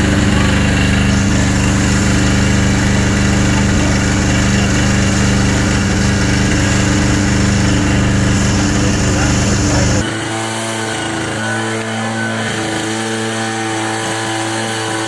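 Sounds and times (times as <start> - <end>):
fire truck engine running: 0.0 - 10.0
hose jet hissing: 0.0 - 10.0.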